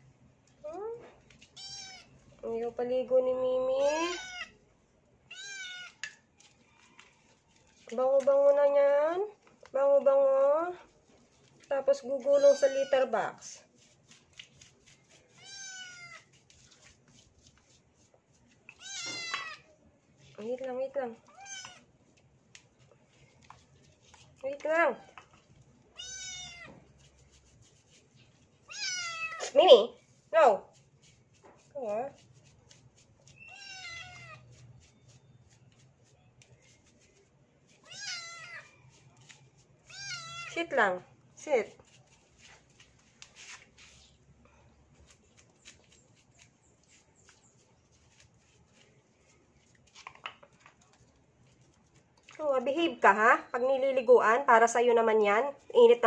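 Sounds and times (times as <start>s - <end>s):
kitten meowing in distress: 4.0s - 4.5s, 26.0s - 26.7s, 33.5s - 34.4s
kitten meowing: 4.1s - 4.5s, 5.3s - 6.0s, 26.0s - 26.7s, 28.7s - 29.4s, 33.5s - 34.4s, 37.8s - 38.7s.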